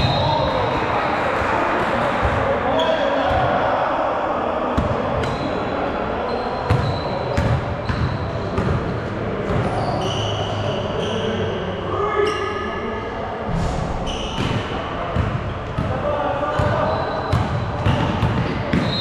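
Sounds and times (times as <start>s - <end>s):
crowd and player noise: 0.0s - 19.0s
shoe squeaks: 6.2s - 8.3s, 9.6s - 11.4s, 14.0s - 14.5s, 16.8s - 18.1s, 18.8s - 19.0s.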